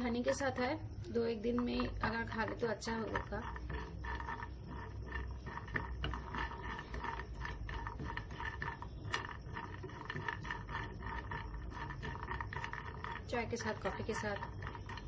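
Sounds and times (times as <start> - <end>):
spatula scraping nuts in pan: 1.2 - 15.0.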